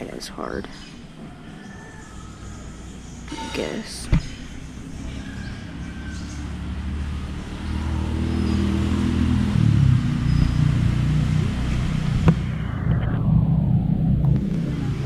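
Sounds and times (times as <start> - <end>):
motor engine running: 6.2 - 15.0.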